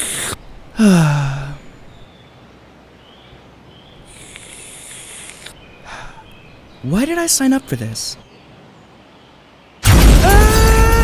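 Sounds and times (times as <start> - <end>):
steady high hiss: 0.0 - 9.8
person groaning: 0.8 - 1.6.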